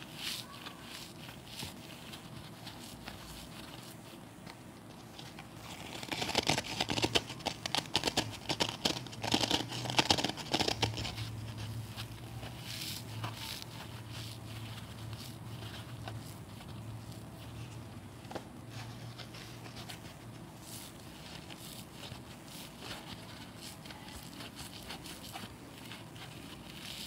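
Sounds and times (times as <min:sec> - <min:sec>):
scouring sponges crackling: 0:00.0 - 0:27.0.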